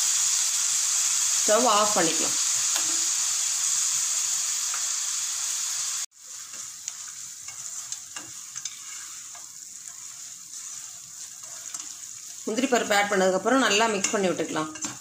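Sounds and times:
food sizzling in a pan: 0.0 - 15.0
spatula scraping and tapping: 6.4 - 12.4, 13.7 - 15.0.

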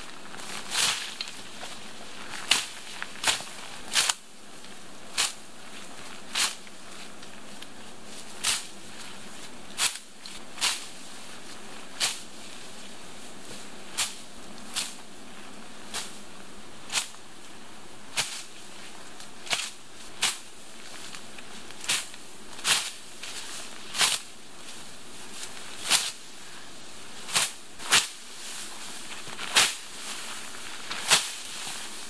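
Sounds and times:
blade swishing through grass: 0.4 - 4.2, 5.1 - 5.5, 6.2 - 6.7, 8.1 - 12.8, 13.5 - 15.0, 15.9 - 16.2, 16.9 - 17.2, 18.1 - 18.6, 19.4 - 26.3, 27.2 - 32.0.

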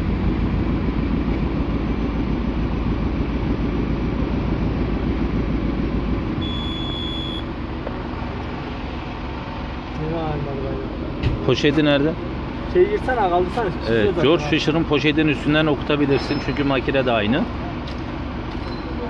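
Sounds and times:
low motor rumble: 0.0 - 19.0
high electronic beep: 6.4 - 7.5.

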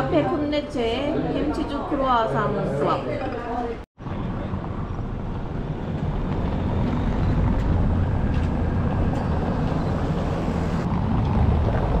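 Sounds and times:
faint traffic noise: 0.0 - 12.0
wind rumble on microphone: 4.2 - 12.0.

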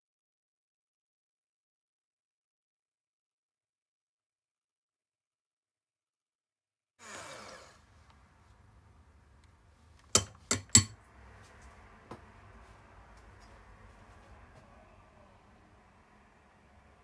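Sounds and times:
beaters knocking against glass bowl: 10.2 - 11.0.

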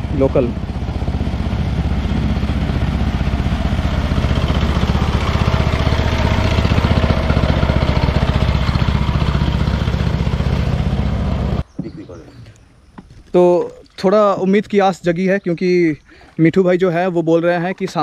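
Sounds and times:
small engine running: 0.0 - 11.6.

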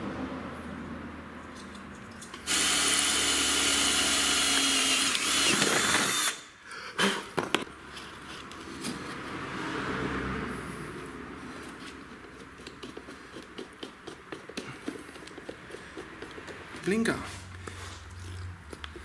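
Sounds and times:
cordless drill boring through metal: 2.4 - 6.5.

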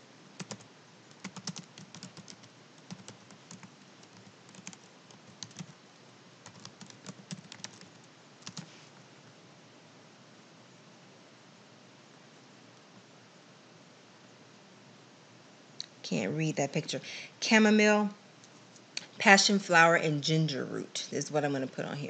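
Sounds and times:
typing on computer keyboard: 0.4 - 5.8, 6.4 - 8.7.

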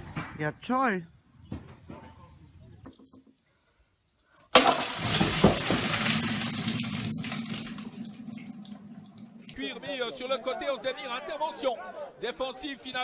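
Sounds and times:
dense hissing crackling noise: 4.5 - 10.3.

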